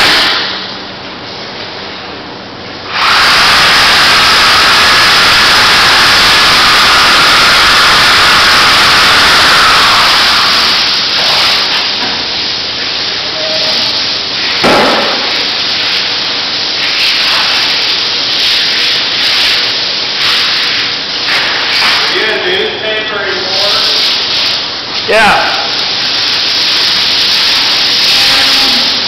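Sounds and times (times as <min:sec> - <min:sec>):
power knife hissing: 0:02.9 - 0:11.8
short knock: 0:14.6 - 0:15.3.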